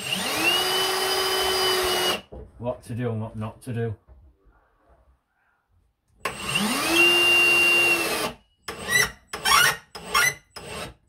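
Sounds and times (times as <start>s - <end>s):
power drill motor running: 0.0s - 2.2s, 6.2s - 11.0s.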